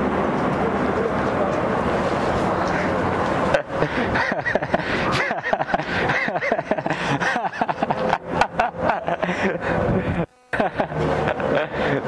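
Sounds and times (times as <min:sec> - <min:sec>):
people talking: 0:00.0 - 0:08.2
street noise: 0:00.0 - 0:12.0
people laughing: 0:02.6 - 0:12.0.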